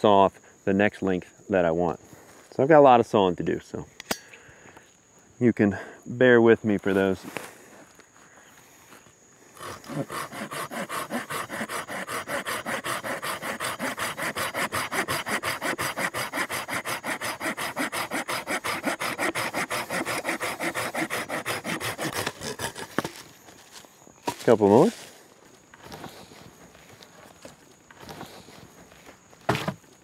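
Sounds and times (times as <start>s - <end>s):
saw cutting wood: 9.6s - 23.2s.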